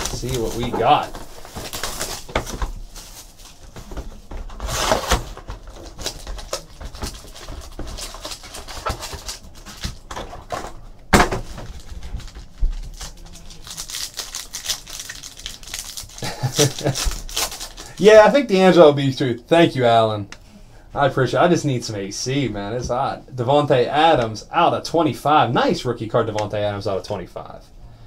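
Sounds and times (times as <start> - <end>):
card packs tearing: 0.0 - 18.3
packaging rustling and crinkling: 0.0 - 18.3.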